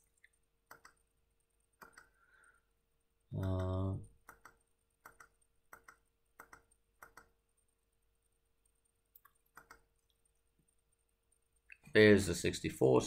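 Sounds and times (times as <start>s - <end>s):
computer mouse clicking: 0.0s - 2.2s, 3.4s - 7.8s, 8.6s - 10.8s.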